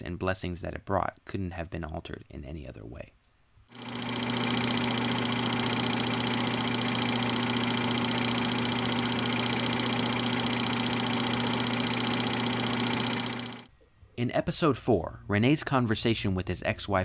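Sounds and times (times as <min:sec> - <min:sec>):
film projector whirring: 0:03.7 - 0:13.7
rapid even ticking: 0:03.7 - 0:13.7.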